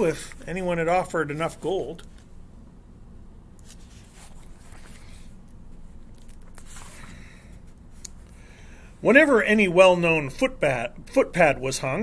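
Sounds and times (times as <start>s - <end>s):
low room hum: 0.0s - 12.0s
book rustling and clicking: 3.6s - 5.3s, 6.0s - 7.2s.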